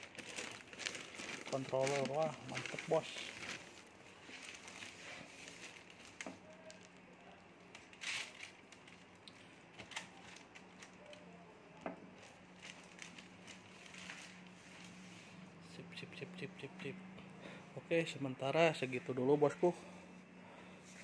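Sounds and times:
plastic wrap rustling: 0.0s - 11.4s, 12.1s - 15.5s.

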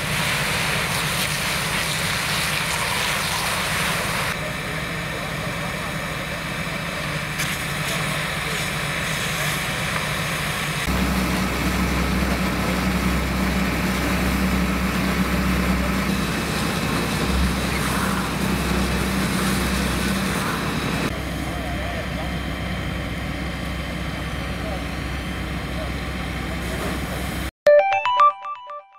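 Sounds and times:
fire hose spraying water: 0.0s - 22.5s
pump engine drone: 0.0s - 27.5s.

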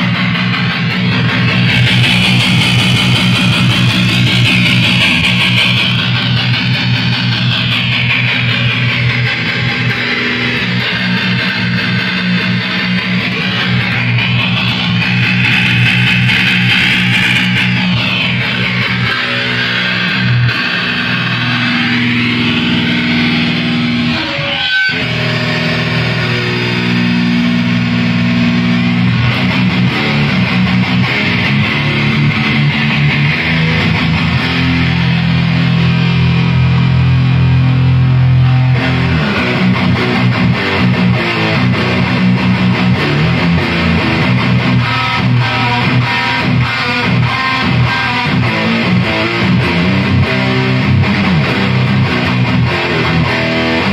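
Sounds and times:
electric guitar chords: 0.0s - 53.9s
electric guitar picked notes: 0.0s - 53.9s.

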